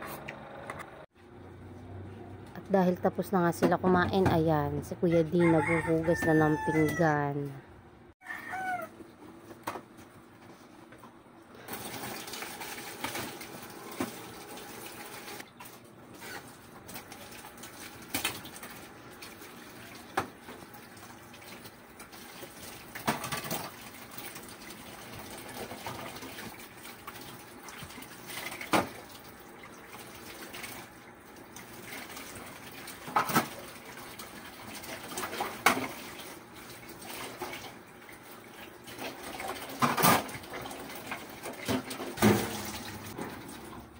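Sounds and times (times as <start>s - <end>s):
tap water running into sink: 38.9s - 43.9s.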